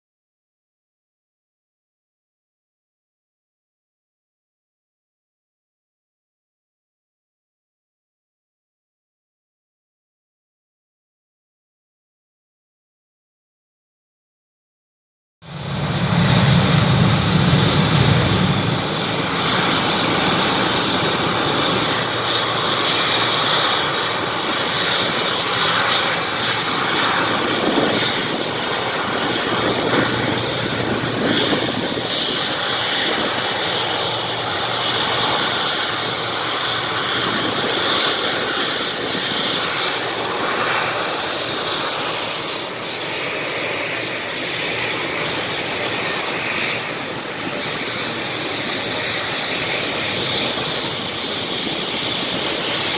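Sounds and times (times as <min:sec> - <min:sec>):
jet engines whining: 0:15.4 - 0:52.9.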